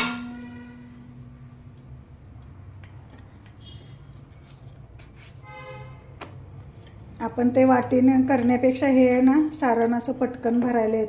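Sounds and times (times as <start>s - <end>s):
light taps and rubbing on dough: 1.5s - 5.4s, 6.1s - 11.0s.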